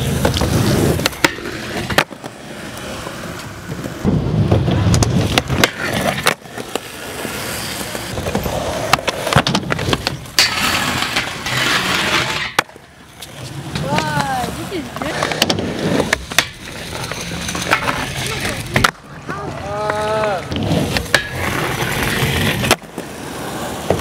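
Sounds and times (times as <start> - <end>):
skateboard scraping on metal rail: 0.0 - 24.0
skateboard tail clacks: 0.0 - 24.0
skateboard wheels rolling on concrete: 0.0 - 24.0.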